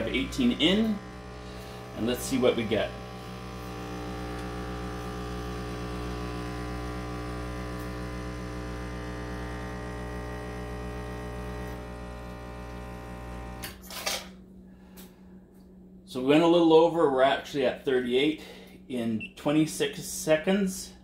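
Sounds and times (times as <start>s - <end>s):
espresso machine pump buzzing: 0.0s - 13.9s.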